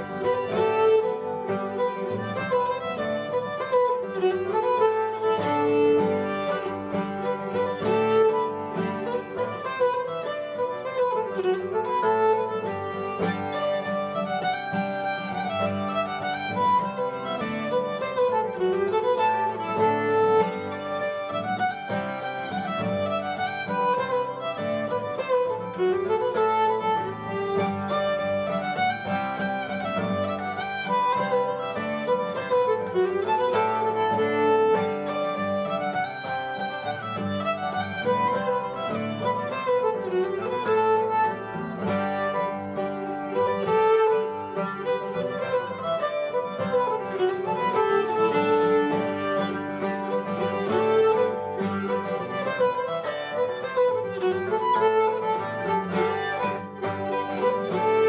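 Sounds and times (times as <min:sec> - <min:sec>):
strummed acoustic guitar: 0:00.0 - 0:58.0.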